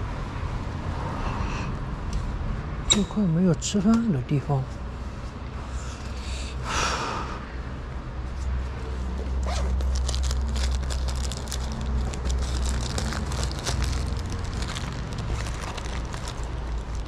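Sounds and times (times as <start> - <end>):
bag rustling and crackling: 9.4 - 17.0.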